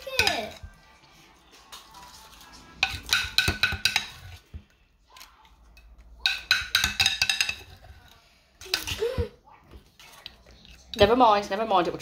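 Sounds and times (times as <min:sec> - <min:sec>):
utensil clinking against mixing bowl: 0:00.0 - 0:00.8, 0:01.8 - 0:04.7, 0:05.6 - 0:09.0, 0:10.0 - 0:12.0.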